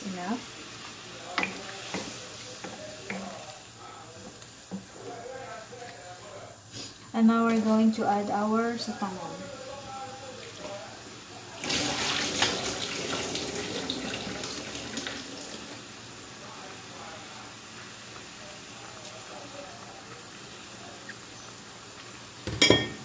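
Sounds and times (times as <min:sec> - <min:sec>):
broth boiling in a wok: 0:00.0 - 0:23.0.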